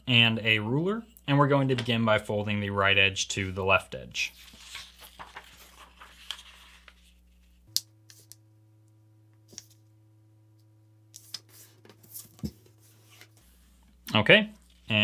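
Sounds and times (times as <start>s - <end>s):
paper crinkling and scraping: 4.2s - 8.3s
paper rustling: 4.2s - 8.3s.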